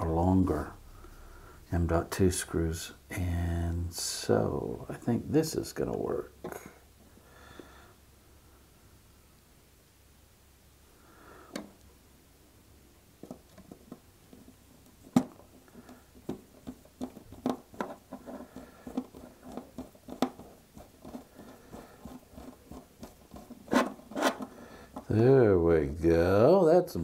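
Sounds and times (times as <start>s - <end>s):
screwdriver clicks and metal scrapes: 23.6s - 24.5s.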